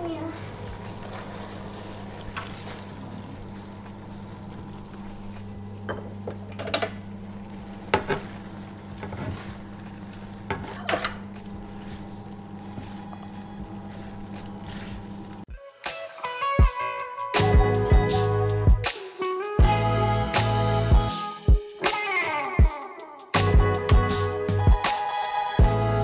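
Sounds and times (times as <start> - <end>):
spatula scraping crunchy food: 11.7 - 15.5.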